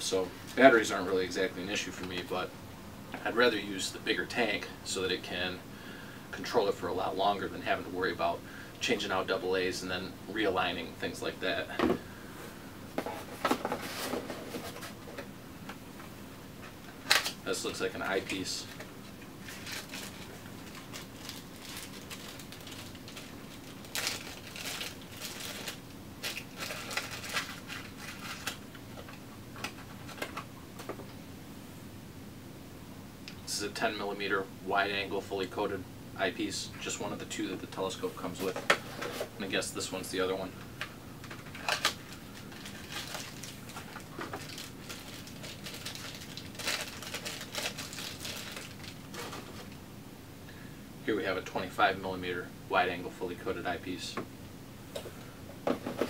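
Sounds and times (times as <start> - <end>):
plastic wrapping crinkling: 18.1 - 30.4, 41.2 - 49.8.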